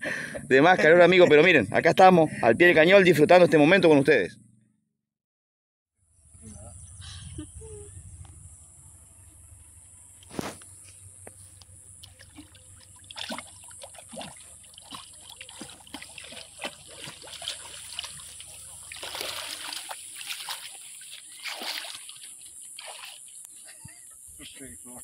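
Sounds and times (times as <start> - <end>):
water splashing and trickling: 11.4 - 23.6.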